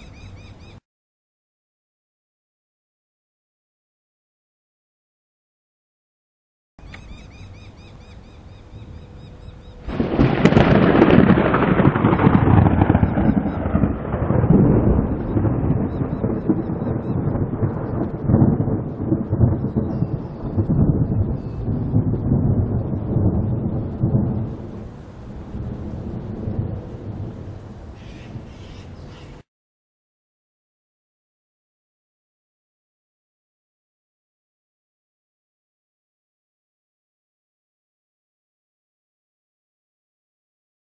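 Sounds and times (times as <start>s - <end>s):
thunder rumbling: 9.0s - 28.7s.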